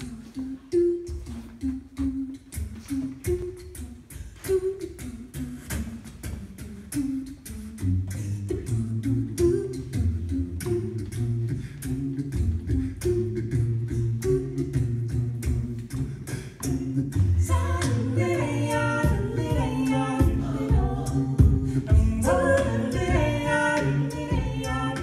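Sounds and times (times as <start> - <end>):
vocal melody singing: 0.0 - 25.0
beatboxed drum hits: 0.8 - 25.0
low vocal bass line: 7.6 - 25.0.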